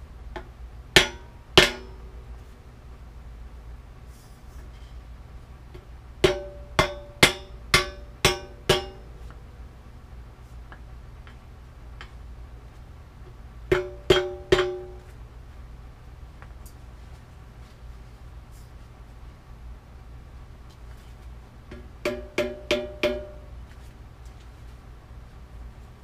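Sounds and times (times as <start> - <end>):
hammer striking metal: 1.0 - 2.0, 6.2 - 9.1, 13.7 - 15.1, 21.7 - 23.4.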